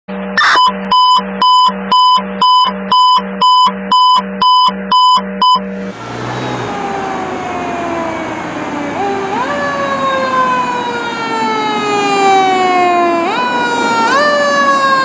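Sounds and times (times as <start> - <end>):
fire truck siren: 0.4 - 0.7, 5.6 - 15.0
electronic alarm beeping: 0.4 - 5.8.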